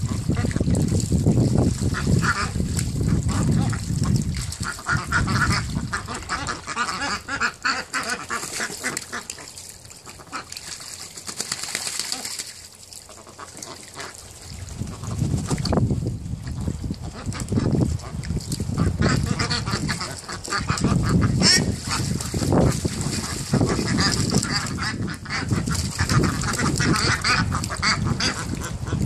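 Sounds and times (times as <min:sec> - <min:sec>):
ducks quacking and honking: 0:00.0 - 0:00.7, 0:01.8 - 0:09.5, 0:13.1 - 0:14.2, 0:16.4 - 0:29.0
ducks splashing in water: 0:00.0 - 0:29.0.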